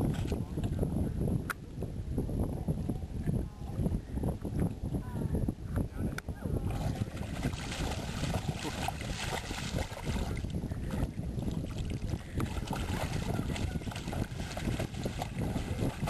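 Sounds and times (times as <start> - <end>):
dog splashing in shallow water: 6.6 - 16.0.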